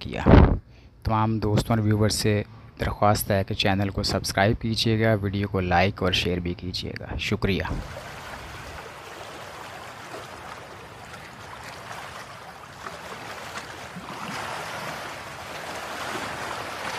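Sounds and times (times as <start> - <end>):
rushing water: 7.7 - 16.9.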